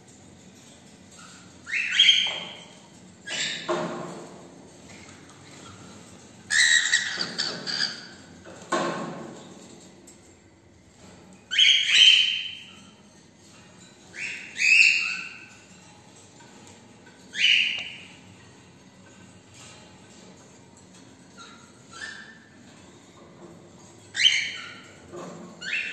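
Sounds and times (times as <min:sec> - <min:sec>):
cockatiels squawking: 0:06.5 - 0:08.1.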